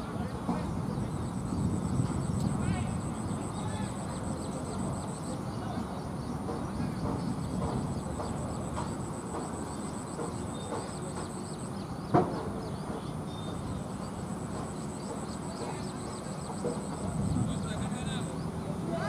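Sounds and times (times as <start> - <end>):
distant voices: 0.0 - 19.0
sharp knock: 12.1 - 13.0.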